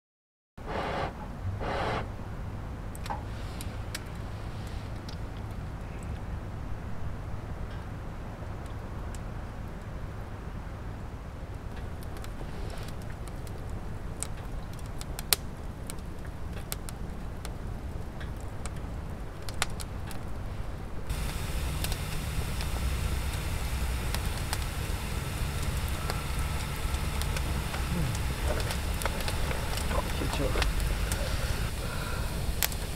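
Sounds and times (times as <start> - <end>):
campfire crackling and popping: 2.8 - 6.8, 7.5 - 10.0, 11.4 - 32.9
bright hiss: 21.1 - 32.9
low rumble: 21.1 - 32.9.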